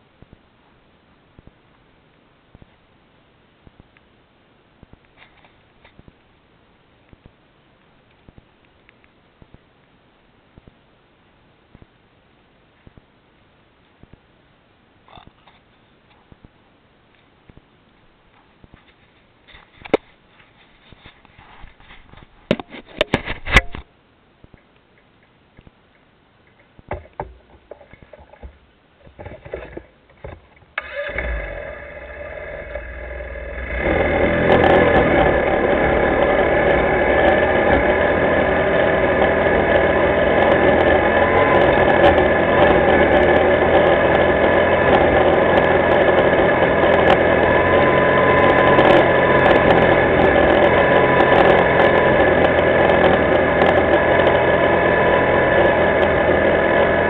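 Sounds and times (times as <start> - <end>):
engine knocks and rattles: 26.9 - 57.0
atv engine idling and running: 30.8 - 57.0.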